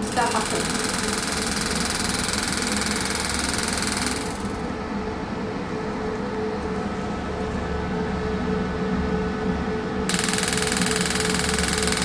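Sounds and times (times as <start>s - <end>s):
machine mechanical pulsing: 0.0s - 4.8s, 10.1s - 12.0s
machine hum: 0.0s - 12.0s.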